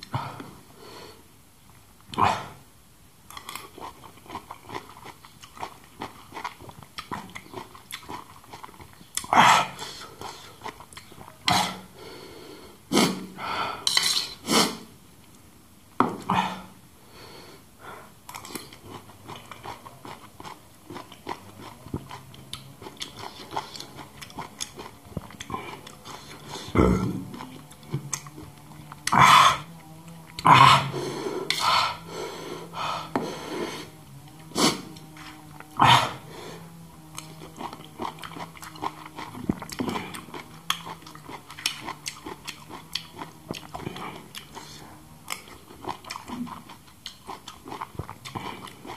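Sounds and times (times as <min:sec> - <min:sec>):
chewing juicy food: 0:03.3 - 0:11.9, 0:18.3 - 0:48.9
metal spoon scraping and clinking: 0:13.9 - 0:14.3
sudden mouth sounds: 0:23.0 - 0:46.8.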